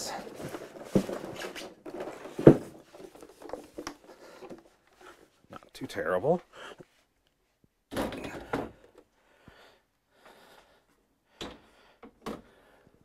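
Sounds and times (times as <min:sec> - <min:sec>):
person breathing heavily: 0:06.5 - 0:06.9, 0:08.2 - 0:13.0.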